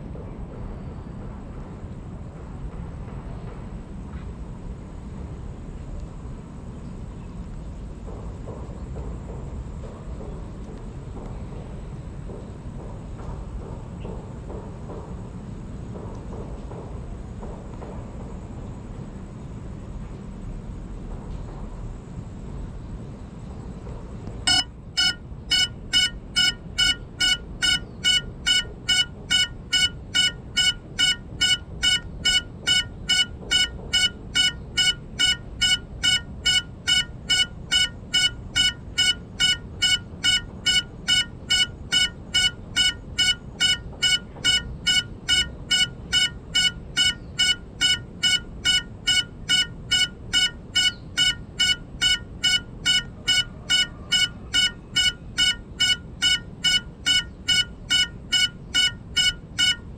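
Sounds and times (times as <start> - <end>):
short high beeps: 24.5 - 59.8.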